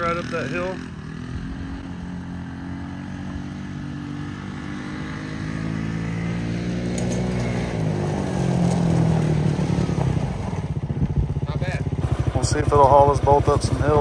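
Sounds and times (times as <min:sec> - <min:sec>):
small engine running: 0:04.8 - 0:14.0.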